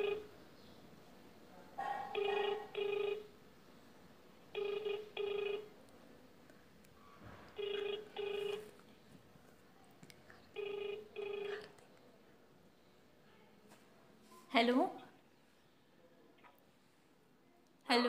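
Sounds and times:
telephone ringback tone: 0.0 - 0.3, 2.2 - 3.3, 4.5 - 5.7, 7.6 - 8.7, 10.6 - 11.7.

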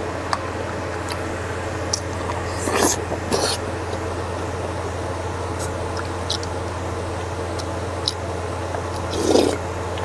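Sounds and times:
low background hum: 0.0 - 10.0
mouth smacks: 1.9 - 3.6, 5.6 - 6.6, 8.9 - 9.6.

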